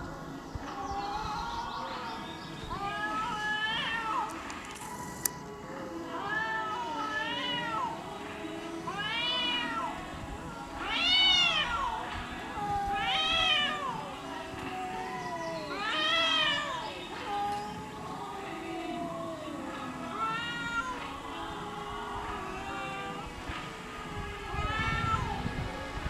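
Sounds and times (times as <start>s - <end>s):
cats yowling: 0.8s - 4.4s, 6.1s - 8.2s, 8.8s - 26.0s
low drawn-out cat moan: 24.1s - 25.6s.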